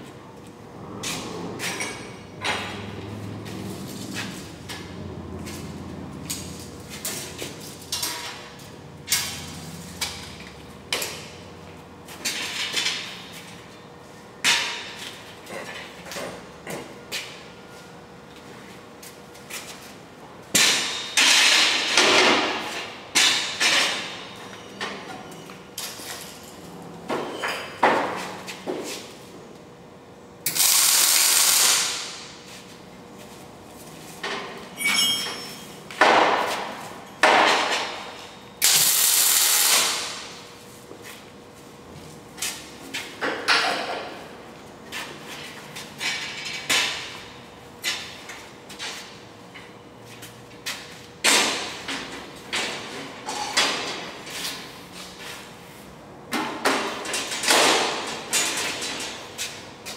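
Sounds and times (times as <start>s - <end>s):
welder crackling hiss: 30.5s - 32.2s, 38.6s - 40.2s.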